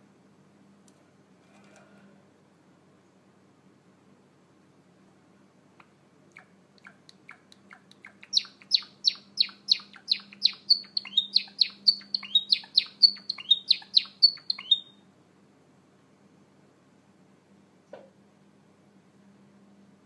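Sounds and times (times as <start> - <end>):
sparrow singing: 6.4 - 15.0.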